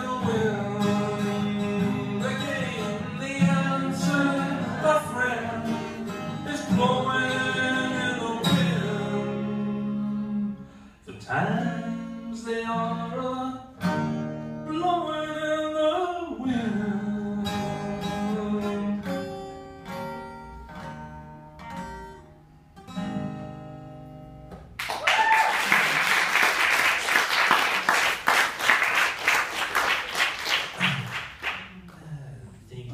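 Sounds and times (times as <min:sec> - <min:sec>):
man singing: 0:00.0 - 0:13.8, 0:14.6 - 0:19.1
acoustic guitar: 0:00.0 - 0:32.9
audience clapping: 0:24.7 - 0:32.1.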